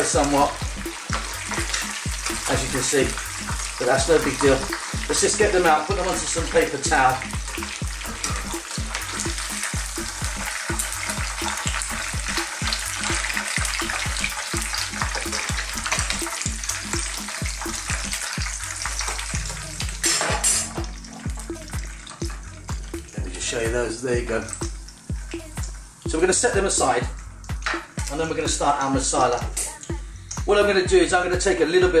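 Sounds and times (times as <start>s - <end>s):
fish frying in hot oil: 0.0s - 32.0s
metal utensils clicking in pan: 20.0s - 21.0s.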